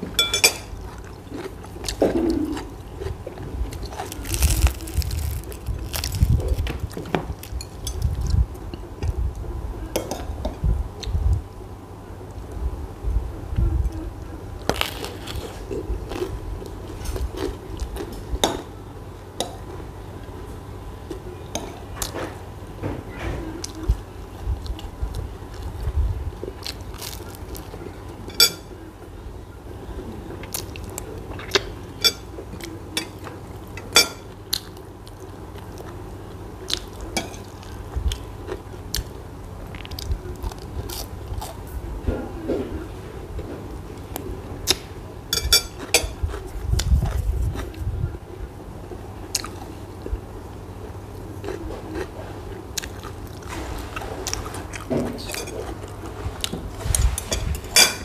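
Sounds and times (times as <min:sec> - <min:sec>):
biting and chewing bread: 0:00.7 - 0:09.2, 0:14.6 - 0:18.4, 0:23.6 - 0:28.6, 0:34.3 - 0:41.8, 0:45.5 - 0:47.9.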